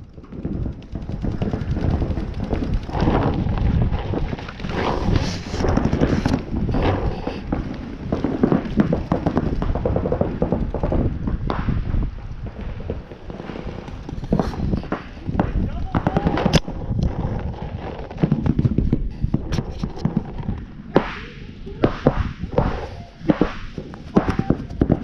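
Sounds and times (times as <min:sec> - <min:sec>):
wind rumble on microphone: 0:00.0 - 0:25.0.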